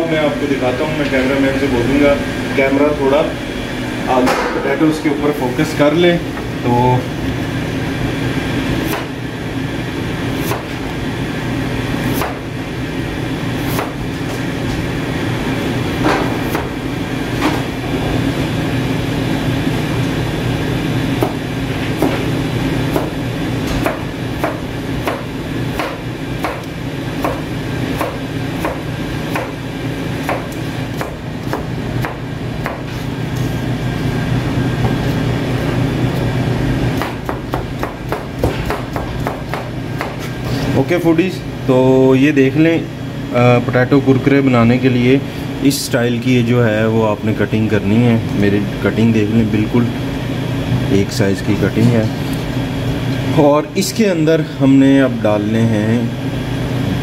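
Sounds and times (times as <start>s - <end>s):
steady mechanical hum: 0.0s - 57.0s
knife chopping on cutting board: 8.8s - 9.1s, 10.4s - 10.8s, 12.1s - 12.4s, 13.6s - 14.0s, 16.1s - 16.7s, 21.2s - 21.4s, 22.0s - 22.3s, 22.9s - 29.6s, 30.2s - 33.0s, 37.0s - 40.4s.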